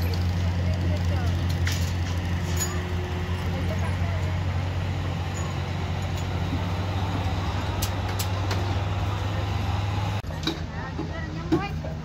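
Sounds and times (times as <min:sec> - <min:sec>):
heavy machinery engine humming: 0:00.0 - 0:12.0.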